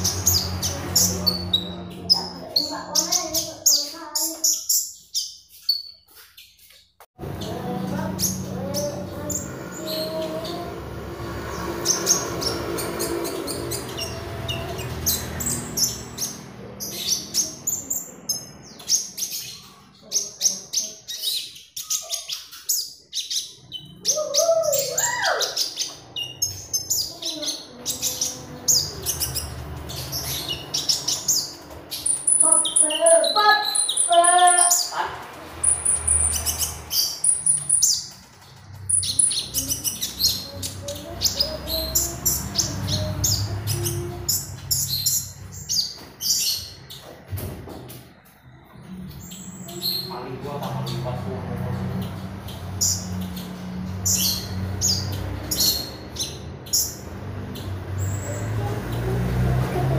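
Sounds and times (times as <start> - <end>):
bird singing high chirps: 0.0 - 47.1.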